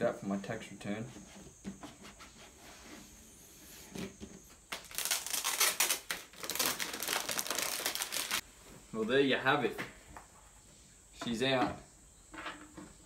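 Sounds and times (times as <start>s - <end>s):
plastic wrapping crinkling: 4.7s - 8.4s.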